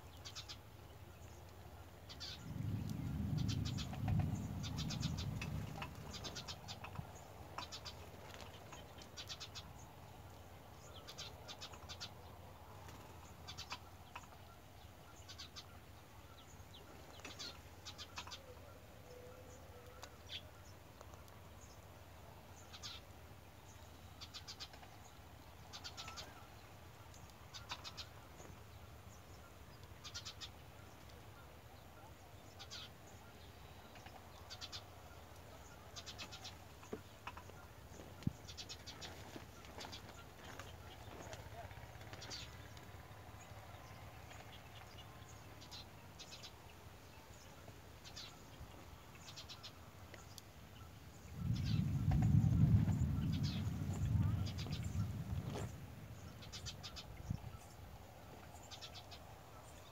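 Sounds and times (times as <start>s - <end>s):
young bird calling: 2.1s - 8.0s, 17.2s - 18.8s, 25.7s - 26.5s
low rumble: 2.2s - 7.0s, 51.2s - 57.7s.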